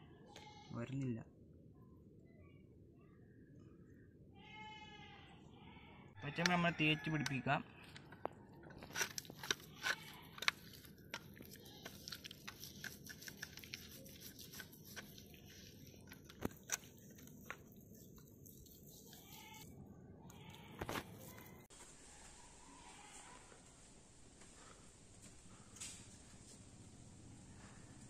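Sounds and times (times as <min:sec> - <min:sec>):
hands rubbing paste onto fish: 0:08.8 - 0:19.7.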